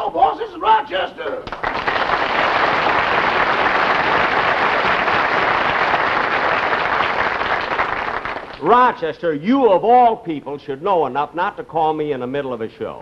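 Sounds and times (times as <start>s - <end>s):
audience applauding: 1.4s - 8.9s.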